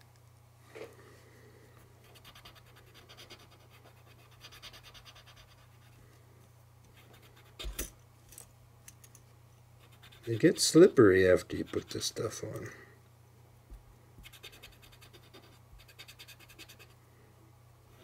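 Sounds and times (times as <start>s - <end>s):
cotton swab scratching on metal: 14.3s - 17.0s.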